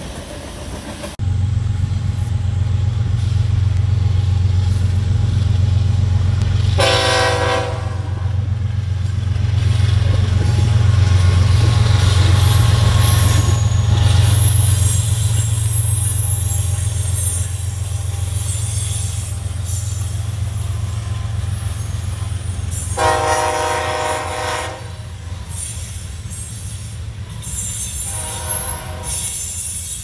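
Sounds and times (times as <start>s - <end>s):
locomotive engine rumble: 0.0s - 30.0s
locomotive air horn blast: 6.7s - 8.5s, 19.8s - 25.6s, 27.9s - 29.5s.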